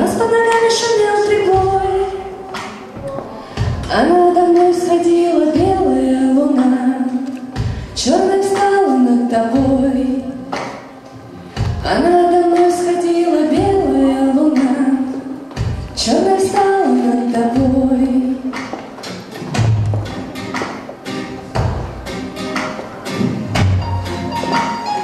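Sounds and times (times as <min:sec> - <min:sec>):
woman singing: 0:00.0 - 0:02.8, 0:03.6 - 0:10.6, 0:11.7 - 0:18.7
drums: 0:00.0 - 0:25.0
keyboard: 0:17.5 - 0:25.0.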